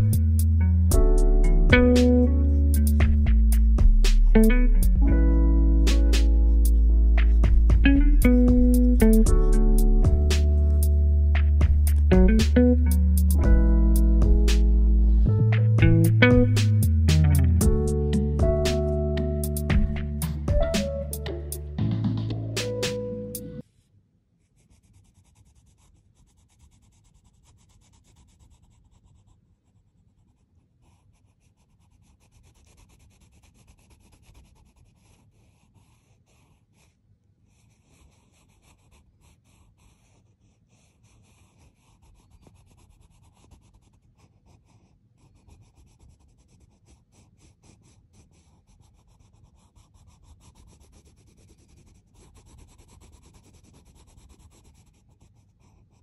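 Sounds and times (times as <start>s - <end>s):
pencil scratching on paper: 0.0s - 23.7s, 24.4s - 56.0s.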